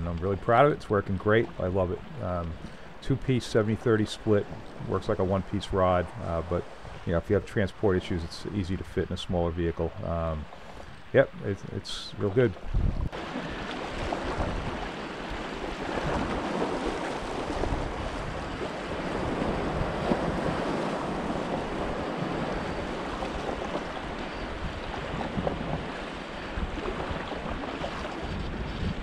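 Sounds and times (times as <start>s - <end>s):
small waves lapping: 0.0s - 8.2s, 9.4s - 29.0s
wind on microphone: 12.5s - 29.0s.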